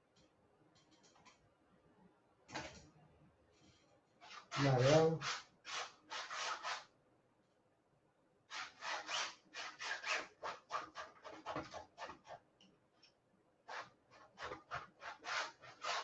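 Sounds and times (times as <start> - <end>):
palette knife scraping paint: 3.6 - 6.9, 8.5 - 12.4, 13.6 - 16.0.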